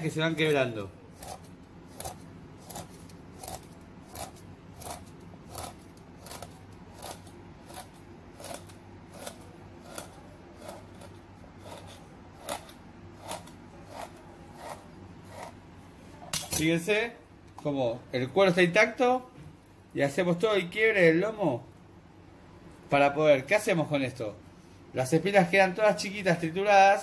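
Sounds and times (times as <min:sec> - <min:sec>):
knife crunching through fish bones: 0:01.2 - 0:15.5.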